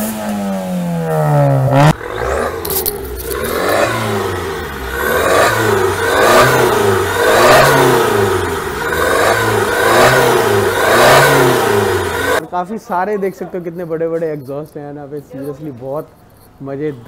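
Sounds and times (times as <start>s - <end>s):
car engine revving in blips: 0.0s - 12.4s.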